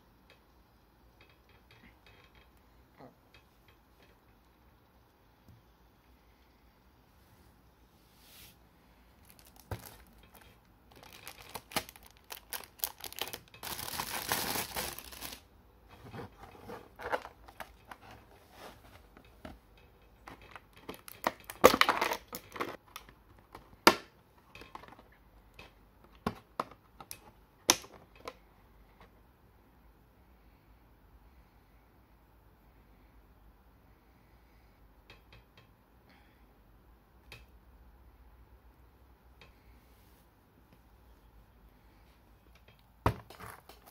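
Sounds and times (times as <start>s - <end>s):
cardboard and plastic crinkling: 9.2s - 15.5s, 16.1s - 19.0s, 20.4s - 23.0s.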